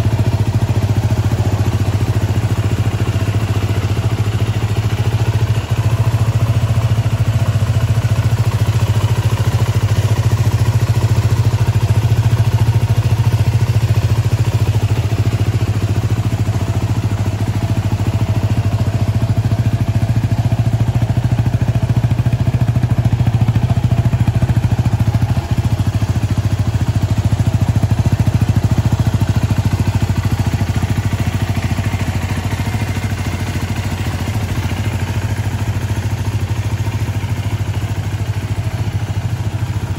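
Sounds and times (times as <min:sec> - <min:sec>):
motorcycle engine idling: 0:00.0 - 0:39.9.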